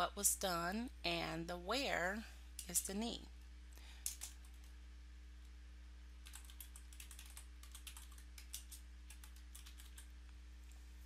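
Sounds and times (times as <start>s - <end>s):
typing on computer keyboard: 6.2s - 10.1s.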